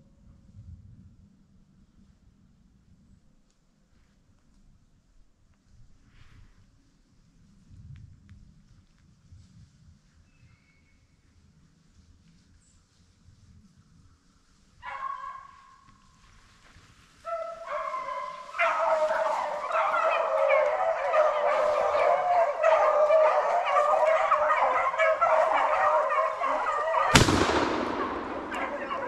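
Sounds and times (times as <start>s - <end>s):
hounds baying: 17.2s - 29.0s
shotgun shot: 27.1s - 29.0s.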